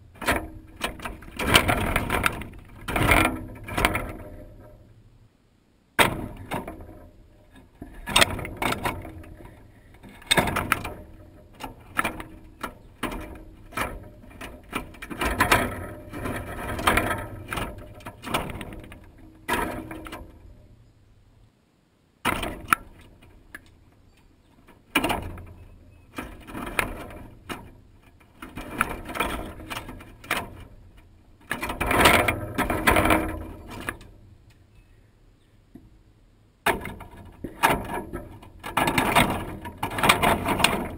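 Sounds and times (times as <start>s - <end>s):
peanuts rattling against wire: 6.0s - 20.6s, 36.6s - 40.9s.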